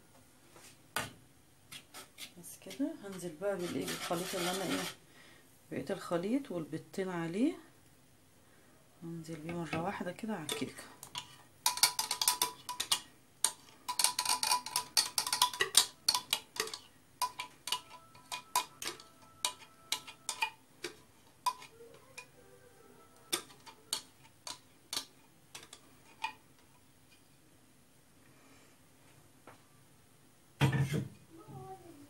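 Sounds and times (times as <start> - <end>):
spatula scraping glass jug: 2.7 - 5.0.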